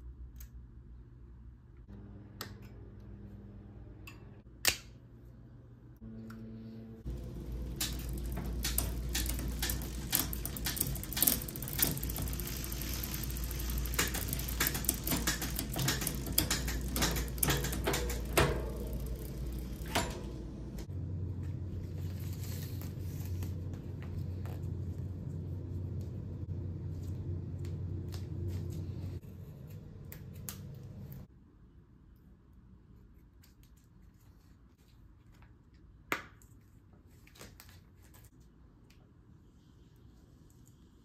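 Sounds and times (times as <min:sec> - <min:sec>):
low steady hum: 0:00.0 - 0:32.2
bicycle chain clicking over cassette: 0:07.1 - 0:20.8.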